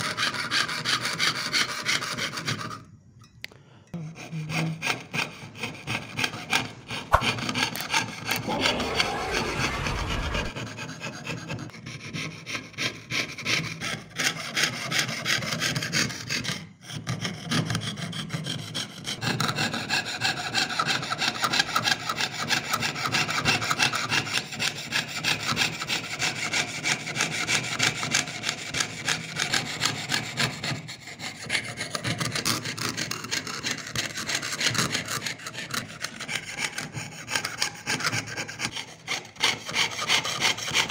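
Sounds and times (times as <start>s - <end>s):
saw rasping through metal sheet: 0.0s - 2.8s, 4.0s - 10.9s, 11.7s - 40.9s.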